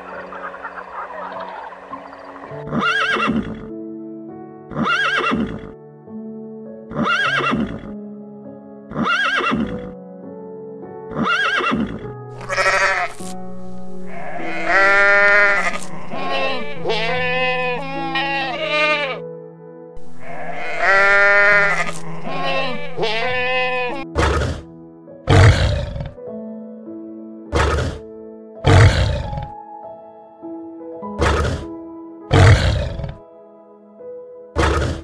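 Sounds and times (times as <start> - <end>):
animal calls rising and falling: 0.0 - 3.5
background music with held tones: 0.0 - 35.0.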